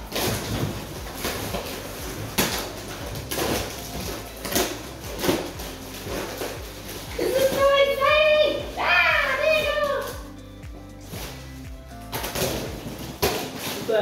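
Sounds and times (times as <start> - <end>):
plastic wrapping rustling: 0.0 - 14.0.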